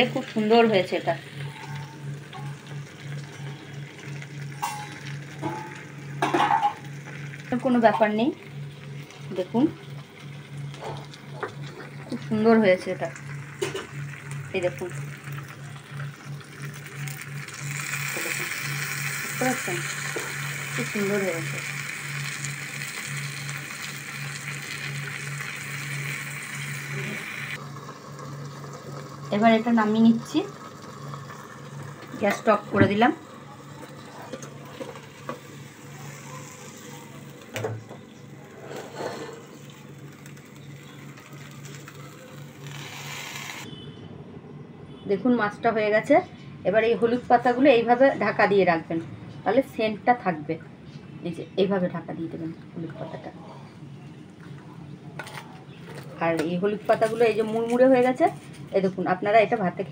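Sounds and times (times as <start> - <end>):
fish sizzling in frying pan: 13.1 - 34.0, 39.5 - 43.6.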